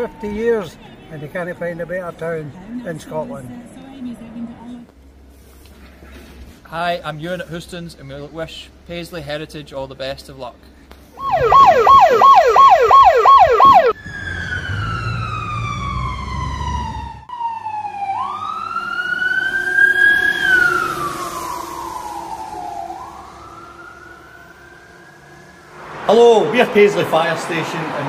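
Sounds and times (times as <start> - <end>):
fire engine siren: 0.0 - 1.0, 11.2 - 28.0.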